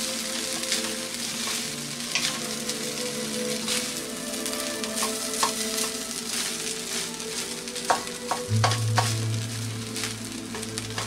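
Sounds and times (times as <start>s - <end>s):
rice sizzling in a hot pan: 0.0s - 11.0s
spatula knocking and scraping pan: 7.9s - 9.3s
low steady hum: 8.5s - 11.0s.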